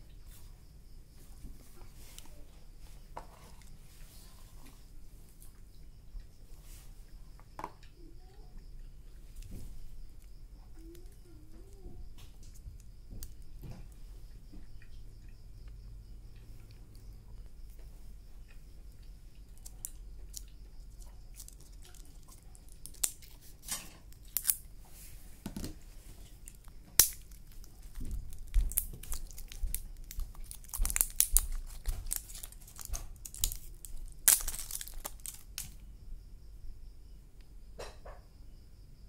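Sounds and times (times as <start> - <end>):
batteries clicking together: 19.5 - 24.6, 26.5 - 35.8.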